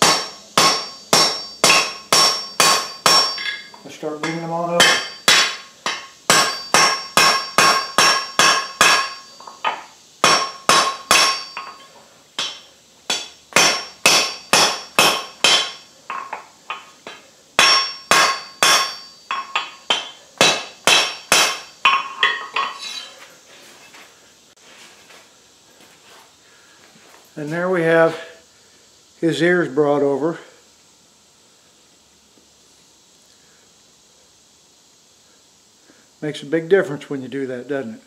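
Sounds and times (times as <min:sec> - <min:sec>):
anvil ringing: 0:00.0 - 0:16.8, 0:17.6 - 0:23.1
hammer striking hot steel: 0:00.0 - 0:23.1.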